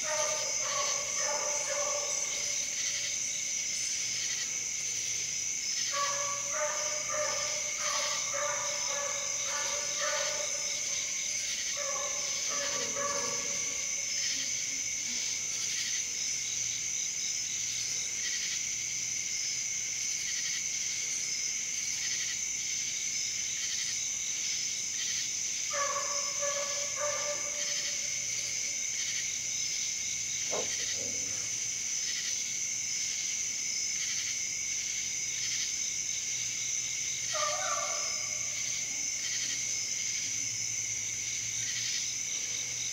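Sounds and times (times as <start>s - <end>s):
hound baying: 0.0s - 3.0s, 5.9s - 14.2s, 25.7s - 28.3s, 30.4s - 31.5s, 37.3s - 38.6s
crickets chirping: 0.0s - 42.9s.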